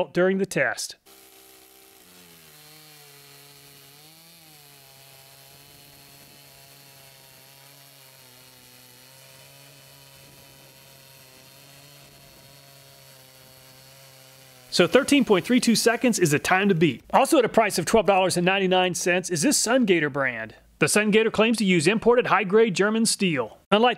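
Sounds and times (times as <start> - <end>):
chainsaw cutting timber: 1.0 - 17.2.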